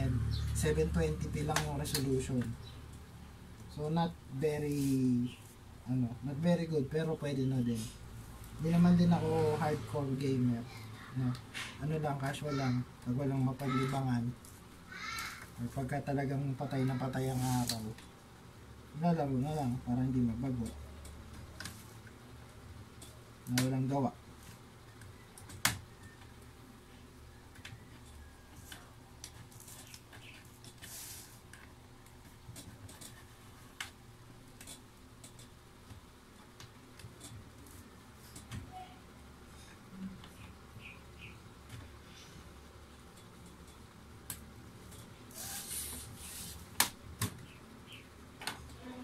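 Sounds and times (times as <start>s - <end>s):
rustling scrape: 4.6s - 5.6s, 17.2s - 17.9s, 30.7s - 31.5s, 45.3s - 46.7s.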